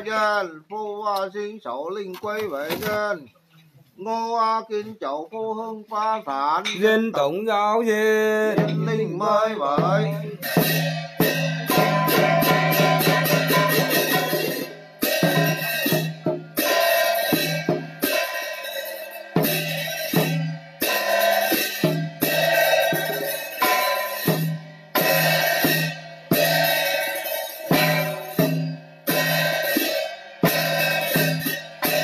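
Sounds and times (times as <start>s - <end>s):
drum beating: 8.3s - 32.0s
clashing cymbals: 9.8s - 32.0s.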